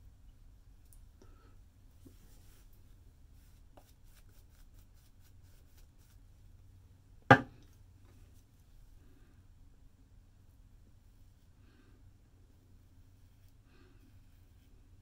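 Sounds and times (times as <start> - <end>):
loud short knock: 7.3 - 7.5.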